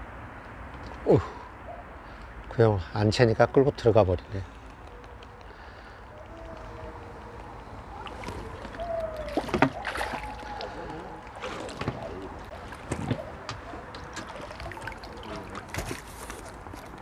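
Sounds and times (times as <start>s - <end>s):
fish splashing at water surface: 6.4s - 17.0s.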